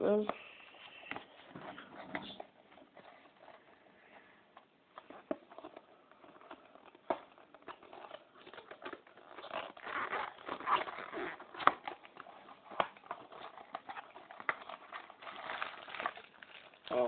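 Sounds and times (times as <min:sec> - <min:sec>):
cardboard crinkling and tearing: 0:04.9 - 0:17.0.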